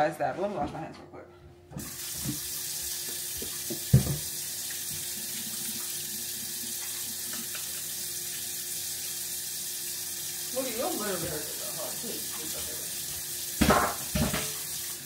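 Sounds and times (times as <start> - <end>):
tap running into sink: 1.8 - 5.1, 13.6 - 14.8.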